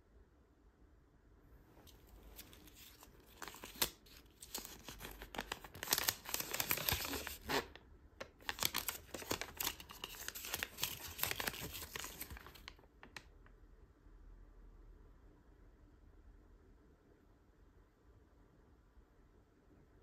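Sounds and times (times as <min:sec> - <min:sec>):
paper crinkling and rustling: 0:01.8 - 0:13.2.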